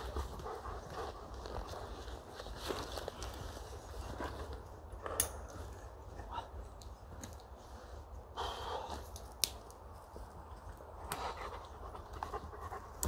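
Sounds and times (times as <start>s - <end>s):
dog panting: 0.0s - 1.9s, 11.1s - 13.0s.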